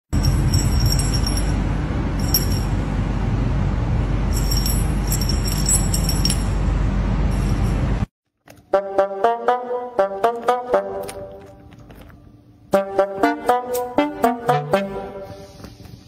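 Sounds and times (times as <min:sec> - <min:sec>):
small bell jingling: 0:00.2 - 0:01.6, 0:02.2 - 0:02.8, 0:04.3 - 0:06.6
brass tune: 0:08.7 - 0:11.6, 0:12.7 - 0:15.6.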